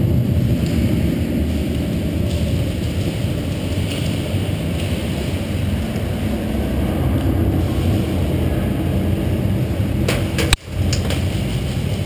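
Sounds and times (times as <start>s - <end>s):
low rumbling background noise: 0.0s - 12.0s.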